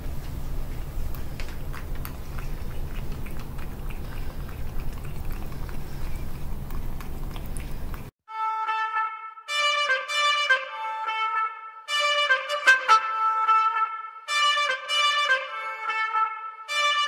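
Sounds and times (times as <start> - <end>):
cat lapping liquid: 0.4 - 8.1
music with trumpet-like melody: 8.3 - 17.0.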